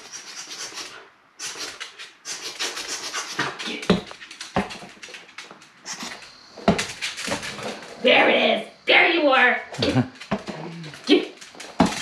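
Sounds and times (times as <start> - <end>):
dog panting: 0.0 - 8.0.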